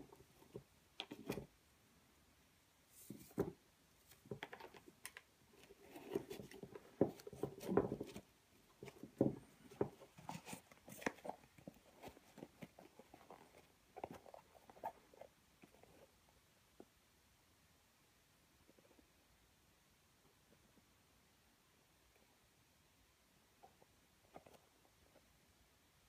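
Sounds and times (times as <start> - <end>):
soft rustles and scrapes: 2.8 - 16.3, 23.6 - 25.4.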